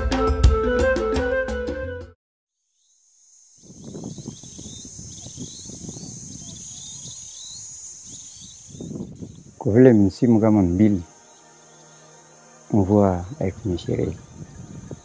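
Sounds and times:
high-pitched insect buzz: 2.5s - 15.0s
chirping bird calls: 3.5s - 15.0s.

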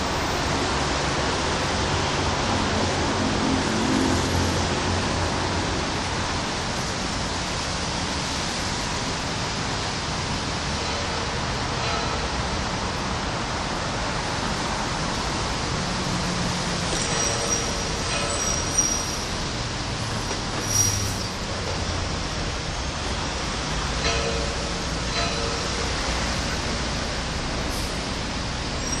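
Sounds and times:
steady rain: 0.0s - 20.5s
traffic on wet street: 0.0s - 29.0s.

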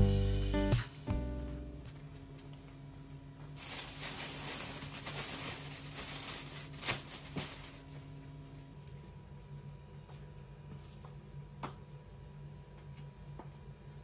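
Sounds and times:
plastic bag rustling: 3.5s - 8.2s.

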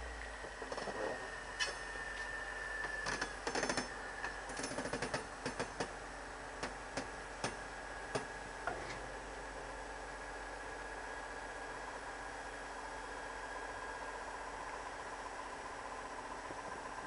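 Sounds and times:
faint high whine: 0.0s - 4.7s.

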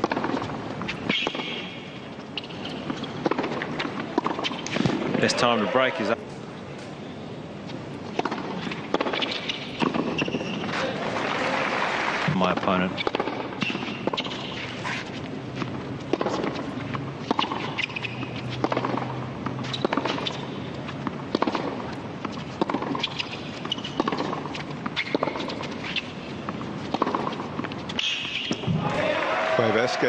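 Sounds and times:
tennis racket strikes: 0.0s - 5.0s, 7.9s - 10.7s, 16.1s - 29.0s
tennis ball bounces: 0.0s - 5.5s, 7.9s - 11.6s, 12.2s - 29.1s.

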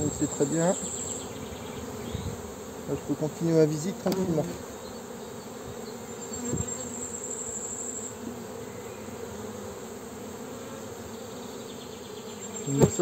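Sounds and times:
honeybees buzzing: 0.0s - 13.0s.

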